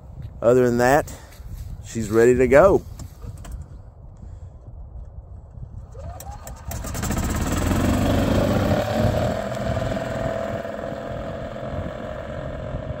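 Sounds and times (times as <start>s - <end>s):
golf cart engine driving off: 5.9s - 13.0s.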